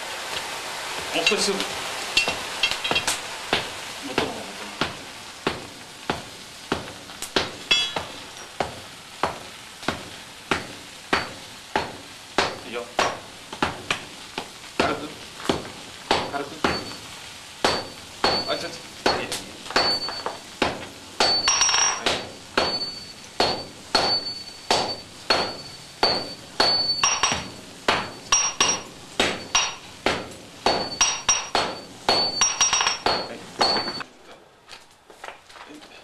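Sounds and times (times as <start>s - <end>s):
hammers striking steel on anvil: 2.2s - 34.0s.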